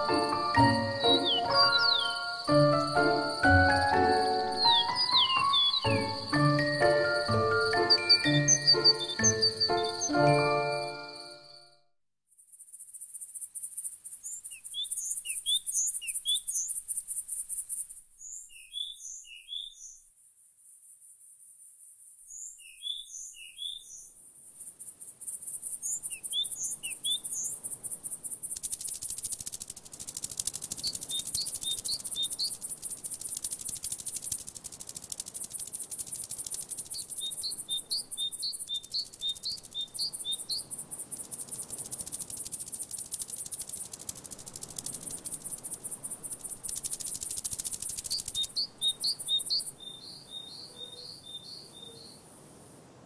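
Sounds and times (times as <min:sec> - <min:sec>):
high insect buzz: 0:00.0 - 0:11.6, 0:24.6 - 0:50.2
bird chirping: 0:00.0 - 0:11.7, 0:12.5 - 0:20.1, 0:22.3 - 0:24.1, 0:24.7 - 0:52.2.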